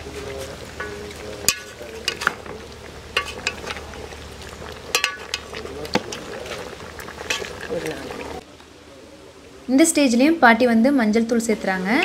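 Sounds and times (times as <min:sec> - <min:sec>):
soft frying sizzle: 0:00.0 - 0:12.0
metal ladle clinking against pot: 0:00.8 - 0:03.8, 0:04.7 - 0:06.6.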